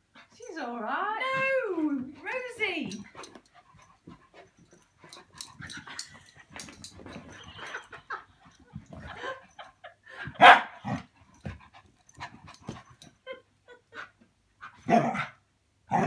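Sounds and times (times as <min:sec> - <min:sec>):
dogs scuffling: 0:01.2 - 0:09.5.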